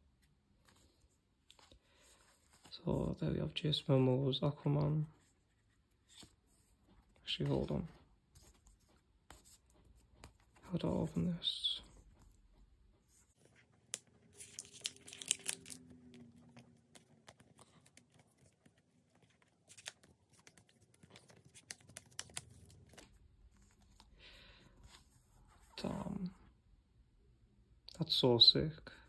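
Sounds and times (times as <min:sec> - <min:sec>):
card sleeve rustling: 0:13.0 - 0:24.1
paper crinkling: 0:13.0 - 0:24.1.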